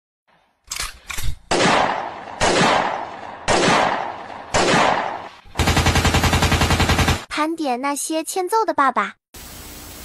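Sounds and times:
gunshots: 0:01.2 - 0:07.3.

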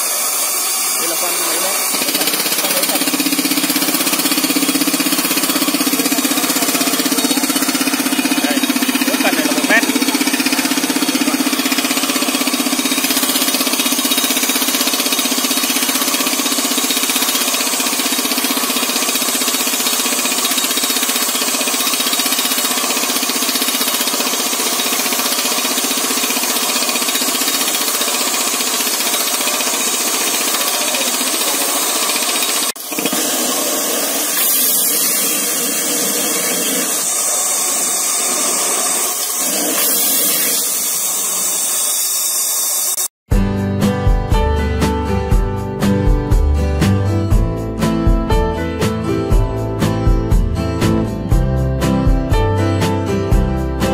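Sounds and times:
rock drill boring into rock: 0:00.0 - 0:43.1.

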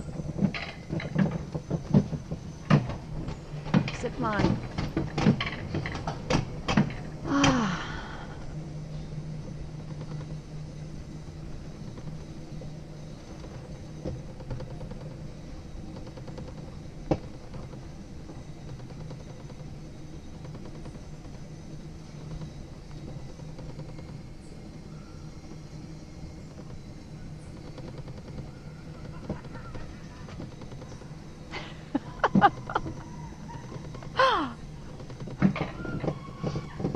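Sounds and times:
sled wheels humming on rail: 0:00.0 - 0:36.9.

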